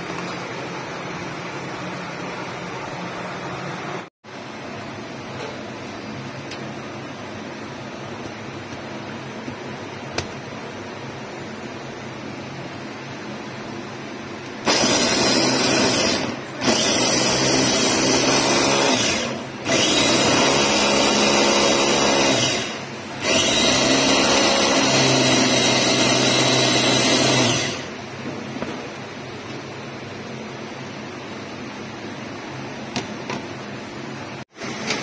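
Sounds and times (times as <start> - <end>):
food chopper motor whining: 14.6 - 28.0.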